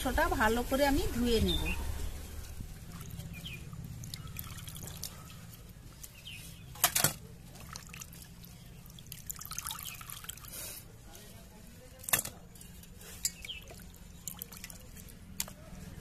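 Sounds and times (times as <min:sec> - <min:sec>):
water splashing and dripping: 0:02.1 - 0:06.1, 0:06.8 - 0:10.5, 0:11.9 - 0:15.6.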